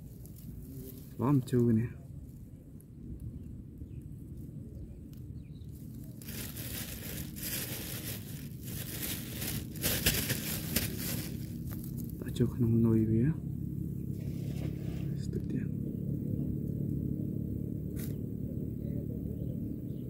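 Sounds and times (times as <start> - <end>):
rustling crinkling handling noise: 0.0 - 2.4, 5.6 - 12.2
low steady rumble: 0.0 - 20.0.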